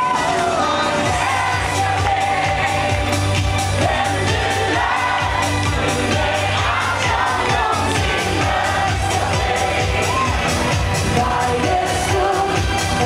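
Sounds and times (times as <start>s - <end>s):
amplified pop band: 0.0s - 13.0s
woman singing into microphone: 11.0s - 13.0s.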